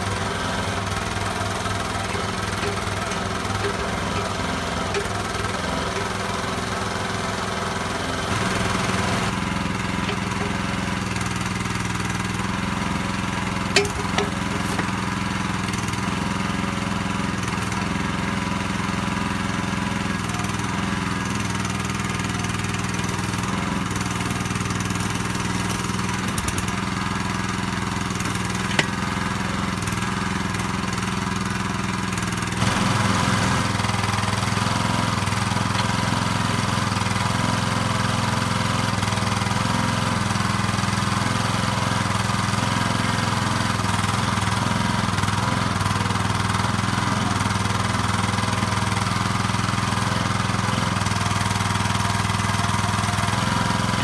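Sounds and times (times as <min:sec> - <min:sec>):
small engine running: 0:00.0 - 0:54.0.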